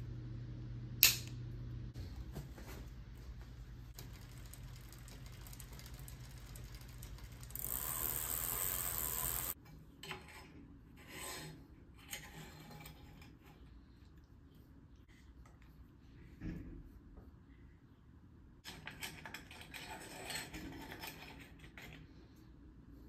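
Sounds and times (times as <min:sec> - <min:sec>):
bicycle chain running over cassette: 0:03.9 - 0:09.6.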